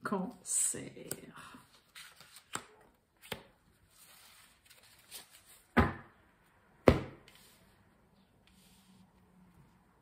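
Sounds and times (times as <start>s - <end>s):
cards rustling: 1.0s - 5.7s
cards thumping on table: 6.8s - 7.2s.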